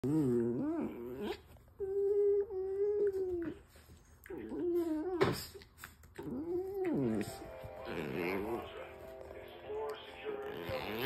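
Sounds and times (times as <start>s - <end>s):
dog howling: 6.2s - 8.6s.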